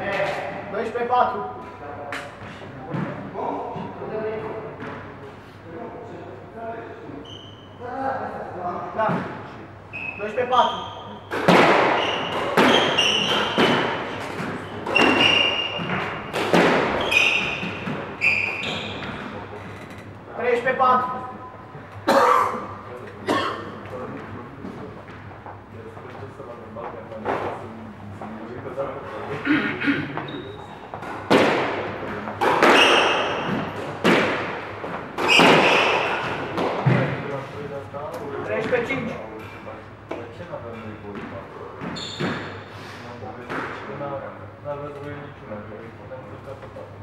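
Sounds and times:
sneakers squeaking on wooden floor: 7.2s - 7.8s, 9.9s - 20.1s, 30.1s - 31.3s, 32.5s - 33.9s, 34.8s - 37.1s, 41.1s - 42.7s
squash ball hits echoing: 11.3s - 19.3s, 30.9s - 37.3s.

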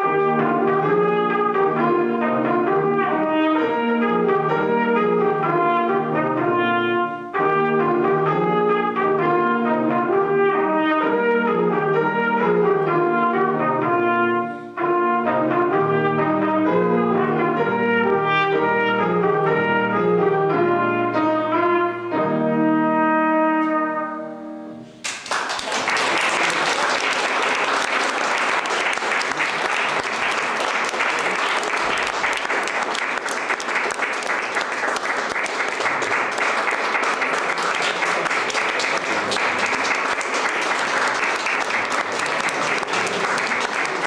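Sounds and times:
trumpet playing: 0.0s - 25.0s
audience applause: 25.0s - 44.0s.

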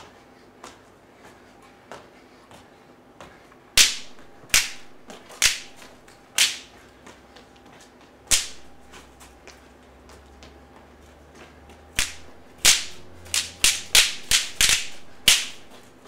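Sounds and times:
loud sharp cracks: 3.8s - 5.8s, 6.4s - 6.7s, 8.3s - 8.7s, 12.0s - 15.7s.

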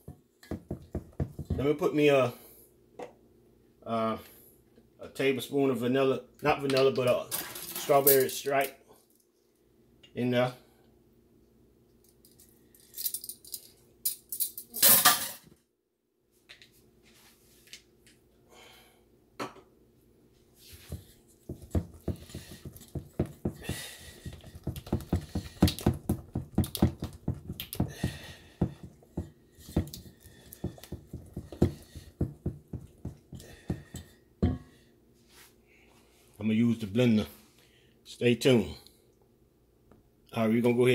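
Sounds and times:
utensil beating batter in metal bowl: 0.0s - 1.8s, 20.8s - 34.6s.

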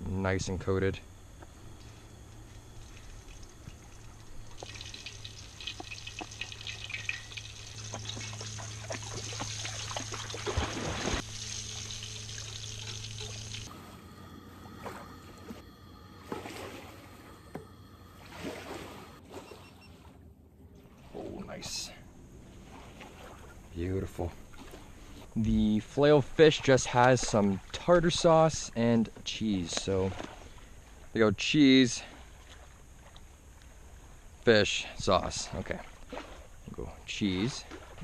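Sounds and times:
fish frying in hot oil: 3.2s - 10.5s, 11.1s - 13.7s.

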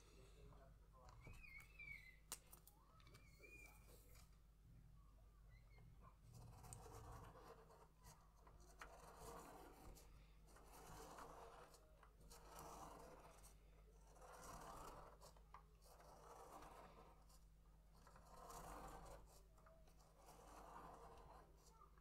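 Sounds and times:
pen scratching on paper: 6.2s - 22.0s.

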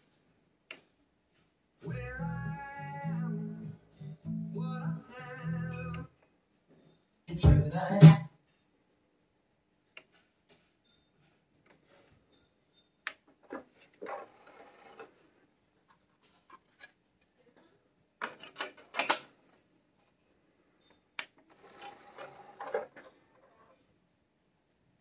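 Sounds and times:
disc tray motor whirring: 21.5s - 23.0s.

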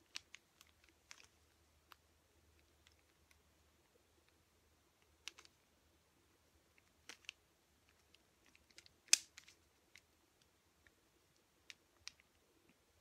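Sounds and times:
puzzle cube plastic clicks: 0.0s - 2.0s, 5.0s - 5.6s, 6.7s - 10.1s.

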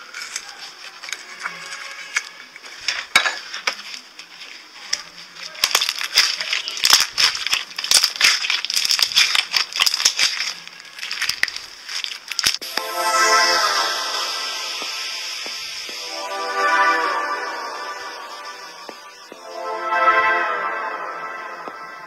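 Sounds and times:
slime crackling and popping: 4.9s - 12.7s.

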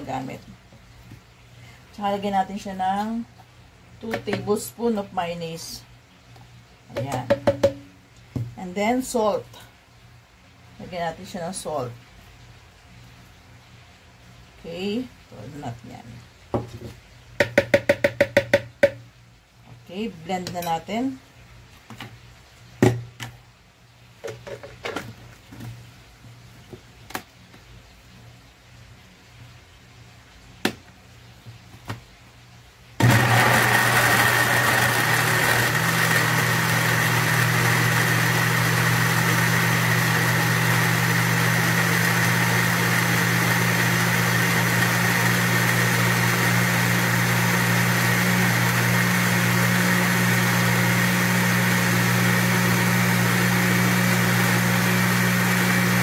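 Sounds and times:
electric blender running: 33.0s - 56.0s.

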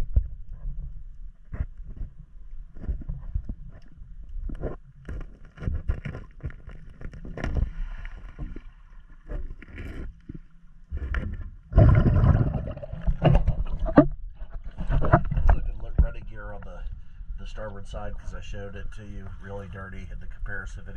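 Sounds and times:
underwater knocks and gurgling: 0.0s - 16.8s
water rushing and splashing: 11.7s - 14.1s.

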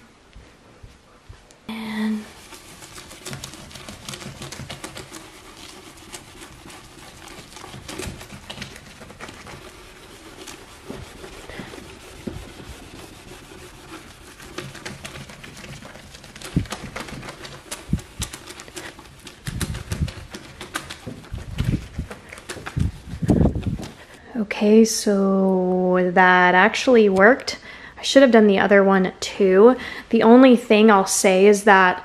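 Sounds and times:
lemon scrubbing plastic lens: 1.8s - 24.2s.

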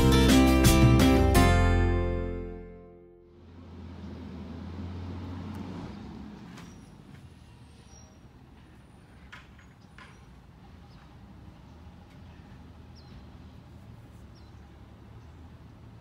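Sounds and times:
vehicle engine rumble: 3.2s - 16.0s.

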